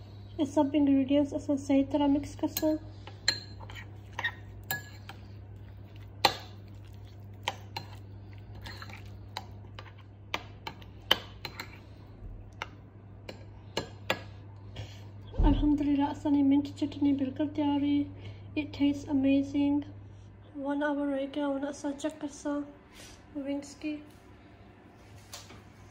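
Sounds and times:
spoon stirring thick chutney: 2.2s - 12.0s
spoon clinking on ceramic bowl: 2.5s - 5.2s.

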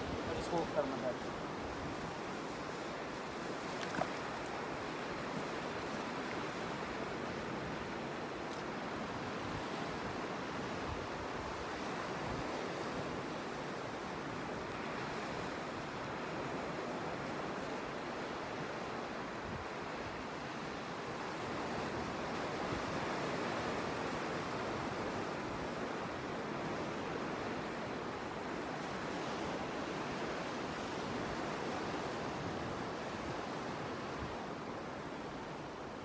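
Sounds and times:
waves washing onto rocky shore: 0.0s - 12.2s.

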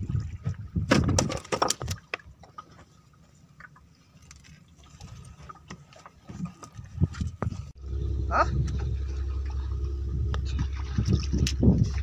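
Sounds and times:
low wind rumble: 6.8s - 12.0s.

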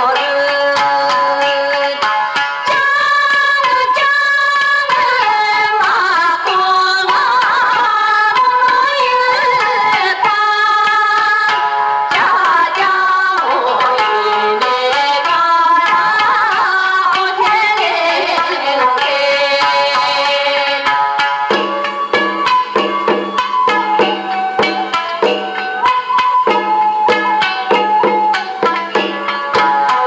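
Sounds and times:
percussion strokes: 0.0s - 30.0s
ornamented wavering melody: 20.8s - 30.0s.

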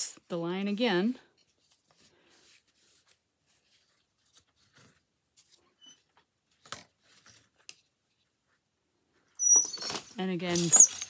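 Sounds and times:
yarn rustling on loom: 9.4s - 11.0s.

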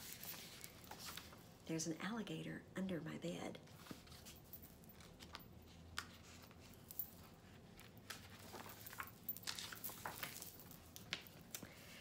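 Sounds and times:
paper pages rustling and turning: 0.0s - 1.5s, 3.7s - 11.6s.

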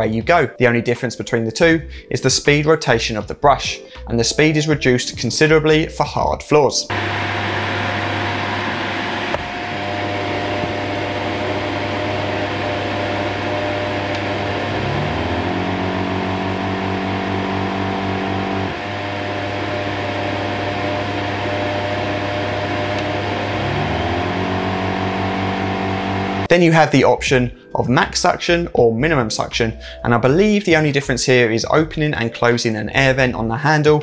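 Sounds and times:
vacuum cleaner motor hum: 6.9s - 26.5s.

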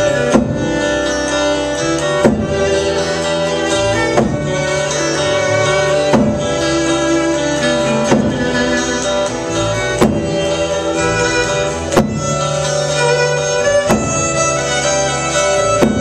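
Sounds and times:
band playing instrumental: 0.0s - 16.0s
fiddle: 0.0s - 16.0s
heavy drum strokes: 5.8s - 11.1s.

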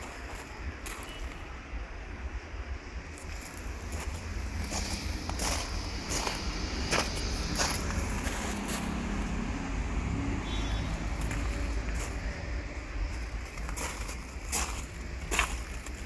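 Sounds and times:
footsteps crunching on gravel: 0.0s - 1.5s, 3.1s - 9.3s, 11.0s - 16.0s
steady low rumble: 1.6s - 16.0s.

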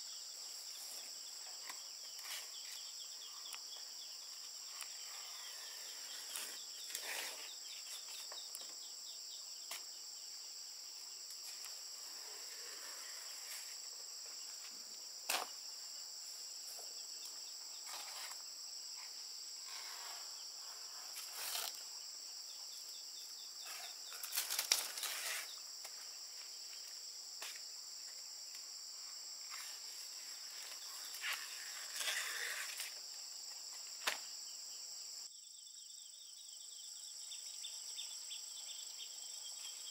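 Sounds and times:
high-pitched insect chorus: 0.0s - 39.9s
banana leaves rustling and snipped: 15.2s - 15.6s, 21.2s - 21.9s, 23.8s - 26.0s, 34.0s - 34.3s.

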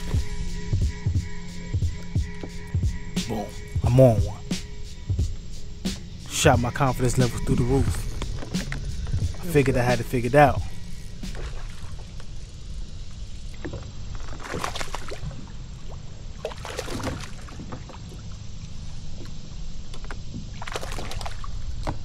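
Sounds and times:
steady low rumble: 0.0s - 13.4s
water splashing: 13.5s - 18.4s, 20.5s - 22.0s.

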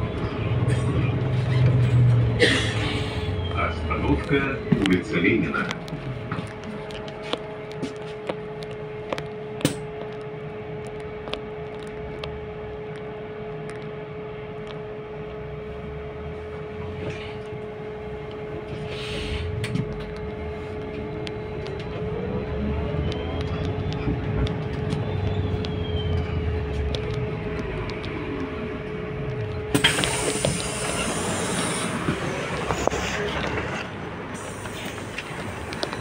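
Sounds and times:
traction motor whine: 19.6s - 36.0s.

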